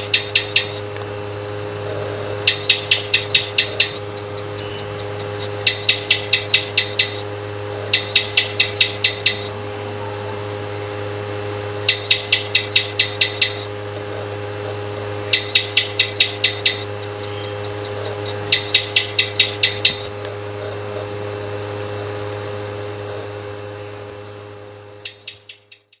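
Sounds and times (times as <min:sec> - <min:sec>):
gecko chirping: 0:00.0 - 0:00.9, 0:01.9 - 0:11.0, 0:11.8 - 0:21.0, 0:25.0 - 0:26.0
low hum: 0:00.0 - 0:26.0.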